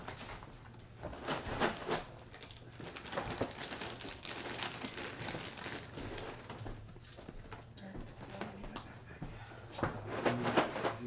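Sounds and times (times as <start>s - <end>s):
plastic bag and cardboard crinkling: 0.0s - 6.8s.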